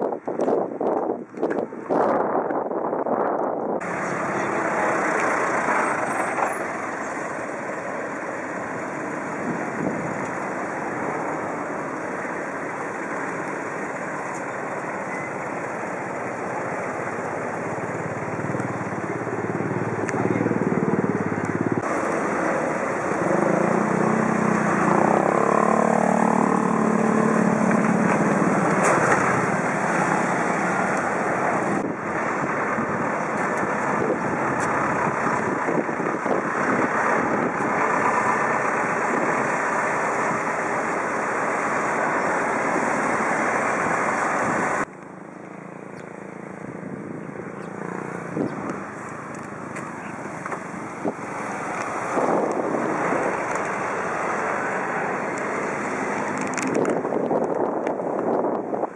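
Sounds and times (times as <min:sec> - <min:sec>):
steady wind rushing: 0:00.0 - 0:06.1, 0:06.7 - 0:44.9, 0:46.3 - 0:58.9
vehicle engine passing: 0:03.8 - 0:44.9.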